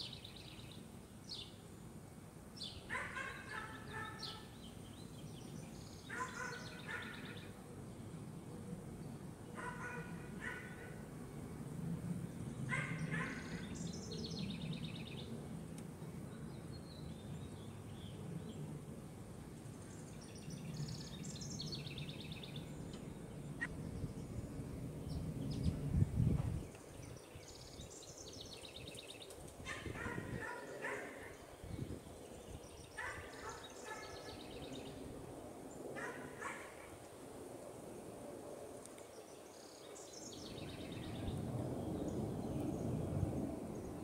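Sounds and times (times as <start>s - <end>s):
steady low rumble: 21.6s - 27.2s.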